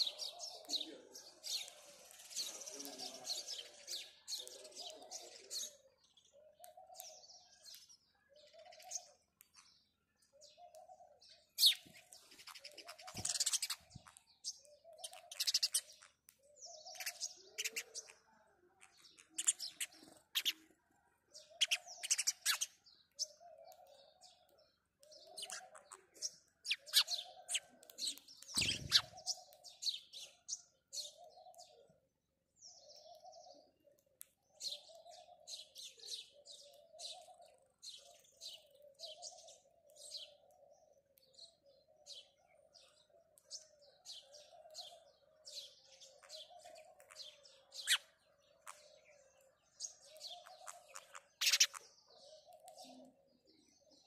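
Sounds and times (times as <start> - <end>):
sparrows chirping: 0.0 - 54.0.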